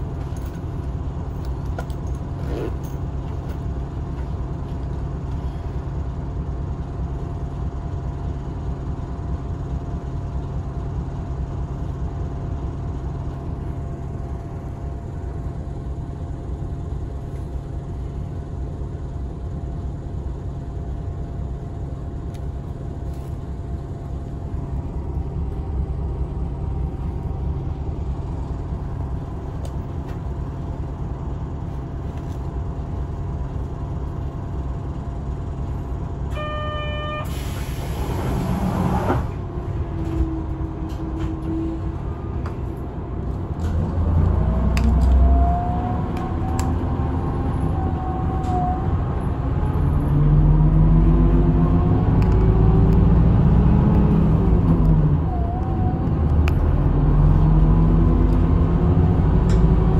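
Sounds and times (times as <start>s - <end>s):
bus engine rumbling: 0.0s - 59.9s
short beep: 36.3s - 37.4s
air hiss: 37.2s - 39.0s.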